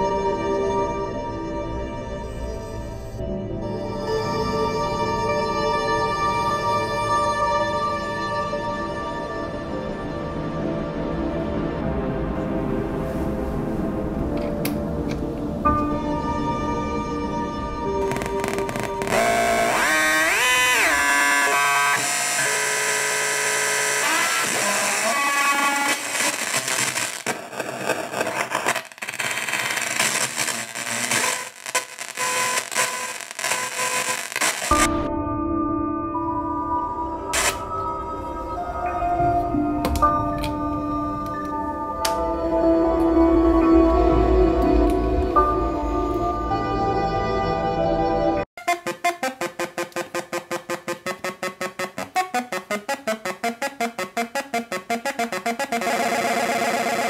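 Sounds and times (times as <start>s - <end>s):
steady synth tones: 17.9s - 34.7s, 48.6s - 57.0s
harsh glitchy digital noise: 18.0s - 34.9s, 37.4s - 37.6s, 54.1s - 57.0s
synth arpeggio of bleepy notes: 48.7s - 57.0s.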